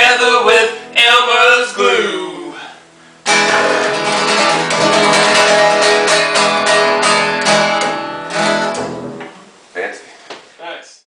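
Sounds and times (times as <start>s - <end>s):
acoustic guitar strumming: 0.0s - 2.6s, 3.2s - 9.6s
plucked double bass: 3.3s - 7.6s.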